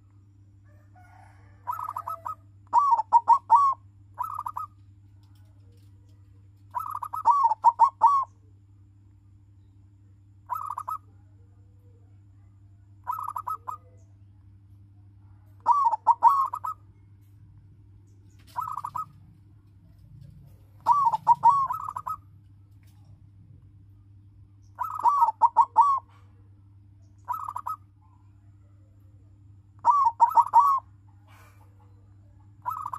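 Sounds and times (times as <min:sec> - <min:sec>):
faint low hum: 0:00.0 - 0:32.9
dove cooing: 0:01.0 - 0:08.4, 0:10.5 - 0:11.0, 0:13.0 - 0:14.0, 0:15.6 - 0:16.8, 0:18.3 - 0:19.3, 0:19.9 - 0:22.3, 0:24.8 - 0:26.4, 0:27.2 - 0:28.3, 0:29.8 - 0:32.9.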